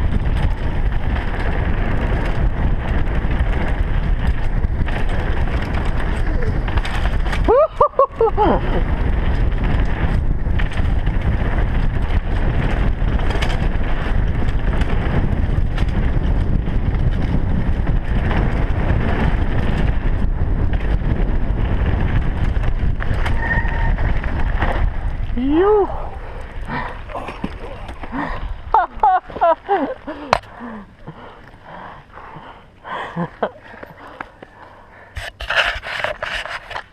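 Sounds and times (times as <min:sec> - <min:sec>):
tyres rattling over dirt trail: 0:00.0 - 0:36.9
wind buffeting camera: 0:00.0 - 0:36.9
wavering whoop: 0:07.5 - 0:08.6
bike brake squeal: 0:23.1 - 0:24.6.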